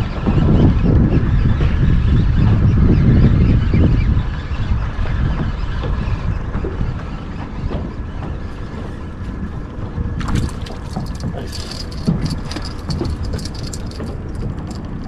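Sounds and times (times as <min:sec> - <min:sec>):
low rumble of wind and water: 0:00.0 - 0:15.0
clicks and rattles: 0:10.2 - 0:15.0.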